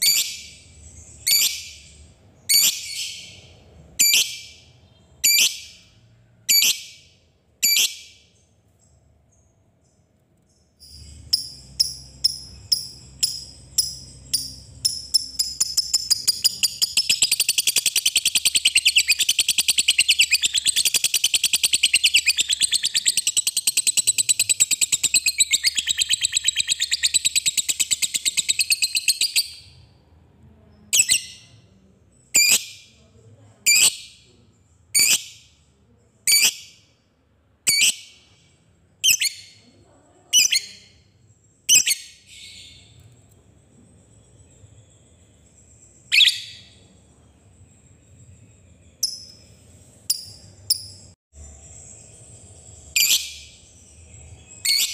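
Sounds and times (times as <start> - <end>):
bird sharp chirps: 0.0 - 29.9, 44.1 - 47.0, 47.6 - 54.9
bird high-pitched trill: 10.8 - 29.8, 46.0 - 46.8, 48.8 - 54.9.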